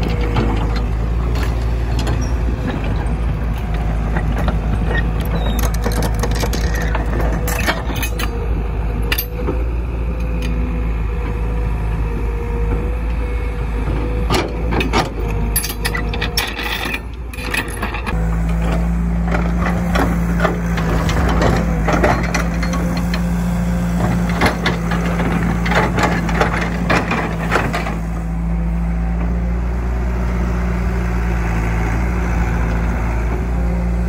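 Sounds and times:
excavator diesel engine running: 0:00.0 - 0:34.0
metallic clanks of excavator bucket: 0:03.7 - 0:08.4, 0:13.9 - 0:23.4, 0:24.0 - 0:28.2.

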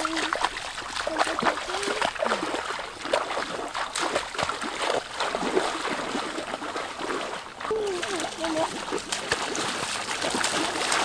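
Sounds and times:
wading through water splashing: 0:00.0 - 0:11.0.

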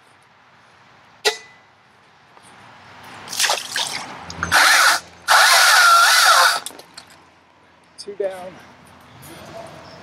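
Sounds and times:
electric chainsaw whining: 0:04.5 - 0:06.7.

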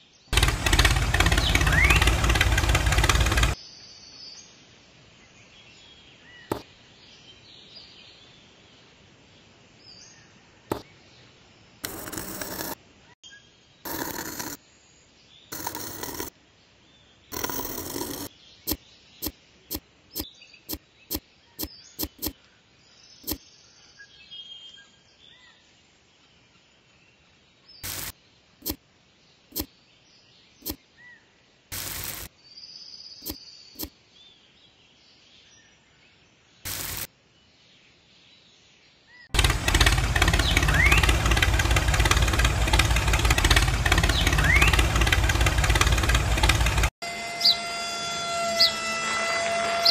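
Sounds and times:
loud engine running: 0:00.4 - 0:03.6, 0:11.8 - 0:12.8, 0:31.8 - 0:32.3, 0:39.4 - 0:47.6
sharp clicks and knocks: 0:00.4 - 0:03.6, 0:22.0 - 0:22.4, 0:39.4 - 0:46.9
shovel scraping damp sand: 0:27.8 - 0:28.8, 0:31.7 - 0:32.3, 0:36.7 - 0:37.1.

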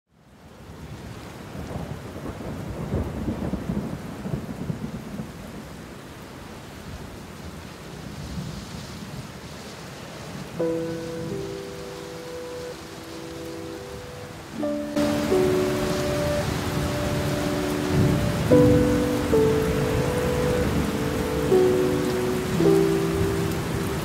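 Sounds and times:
background music: 0:10.6 - 0:24.0
wind rumbling on microphone: 0:12.9 - 0:24.0
waves washing on shingle: 0:14.7 - 0:24.0.

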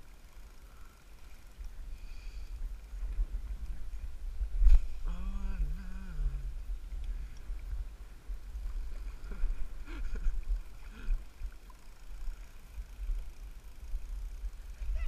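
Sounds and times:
wind rumbling on microphone: 0:01.4 - 0:15.0.

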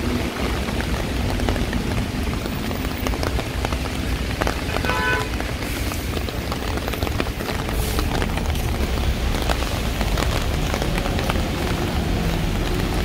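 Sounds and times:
heavy rain: 0:00.0 - 0:13.0.

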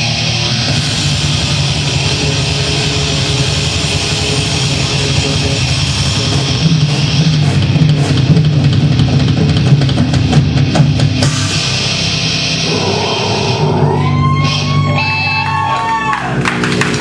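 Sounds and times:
bass guitar: 0:00.0 - 0:17.0
distorted electric guitars: 0:00.0 - 0:17.0
pounding drum kit: 0:00.0 - 0:17.0.

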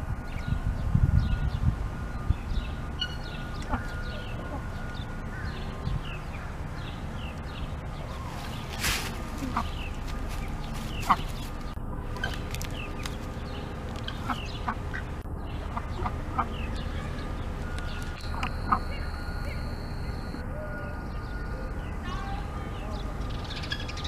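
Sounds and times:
steady low rumble: 0:00.0 - 0:24.0
small birds chirping: 0:00.2 - 0:24.0
poultry clucking: 0:09.3 - 0:11.6, 0:14.1 - 0:16.8, 0:18.2 - 0:20.3.

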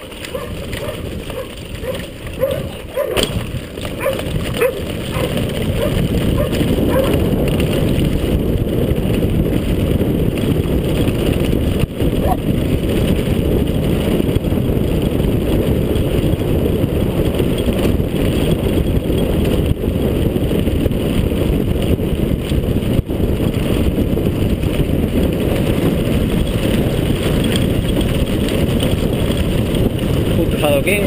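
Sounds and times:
bike rattling over stony track: 0:00.0 - 0:31.0
wind buffeting microphone: 0:00.0 - 0:31.0.

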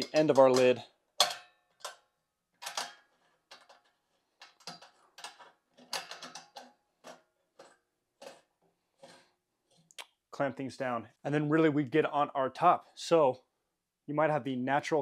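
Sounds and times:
metal clamp clicking and clinking: 0:00.0 - 0:08.5.

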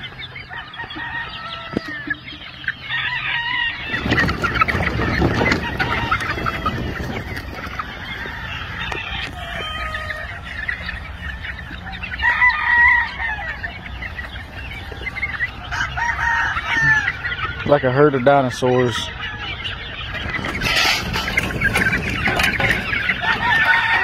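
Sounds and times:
chicks peeping and clucking: 0:00.0 - 0:24.0
young rooster crowing: 0:00.4 - 0:02.2, 0:02.8 - 0:04.3, 0:05.0 - 0:07.2, 0:07.8 - 0:10.6, 0:11.8 - 0:13.8, 0:15.5 - 0:17.4, 0:22.9 - 0:24.0.

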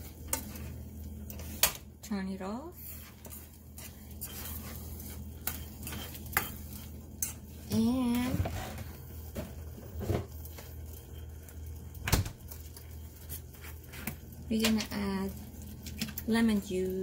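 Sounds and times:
metal spoon stirring in saucepan: 0:02.7 - 0:09.0.

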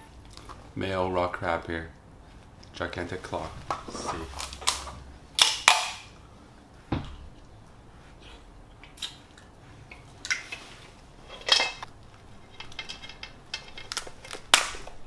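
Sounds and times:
crab shell cracking: 0:13.7 - 0:15.0.

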